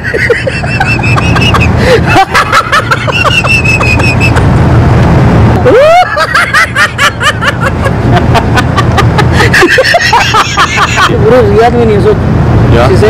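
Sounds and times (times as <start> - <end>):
men laughing: 0.0 - 4.6, 5.6 - 11.3
whoop: 5.6 - 6.1.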